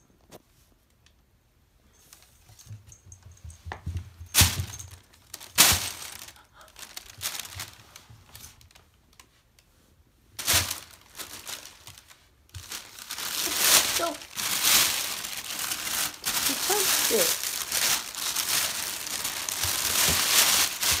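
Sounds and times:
plastic bag crinkling: 4.4s - 8.9s, 10.4s - 21.0s.

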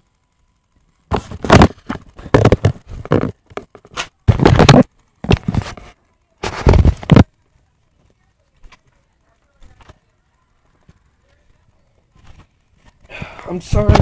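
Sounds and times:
camera handling bumps and scrapes: 1.1s - 7.3s.

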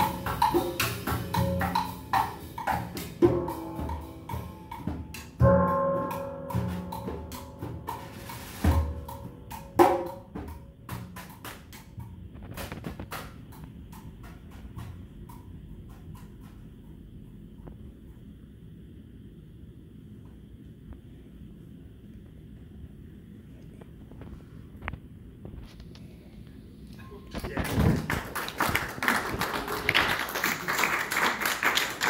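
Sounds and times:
drum kit and hand percussion: 0.0s - 18.3s, 27.0s - 32.0s.

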